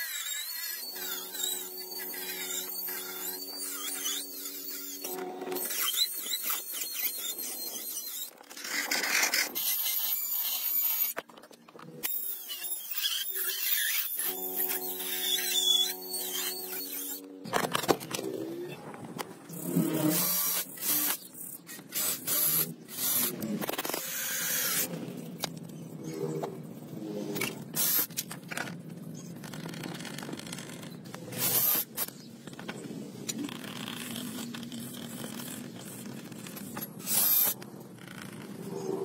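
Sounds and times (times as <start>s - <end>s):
cordless drill drilling plastic: 20.0s - 21.2s, 21.9s - 24.9s.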